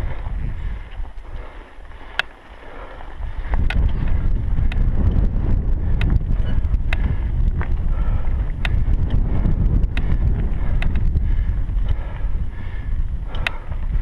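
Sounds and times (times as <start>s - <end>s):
wind rumbling on microphone: 0.0s - 14.0s
sharp clicks: 13.3s - 13.6s.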